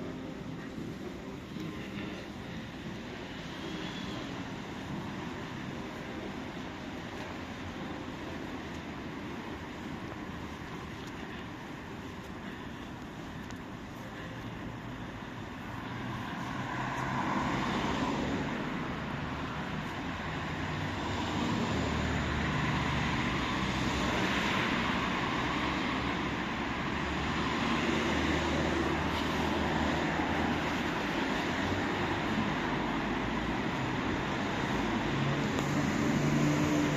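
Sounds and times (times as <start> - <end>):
street traffic noise: 0.0 - 36.9
vehicle engine rumble: 0.0 - 36.9.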